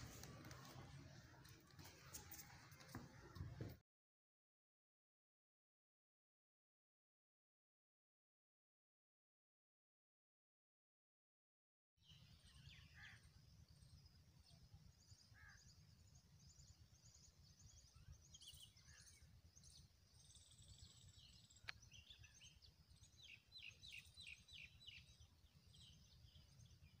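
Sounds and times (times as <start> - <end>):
small birds chirping: 12.0 - 27.0.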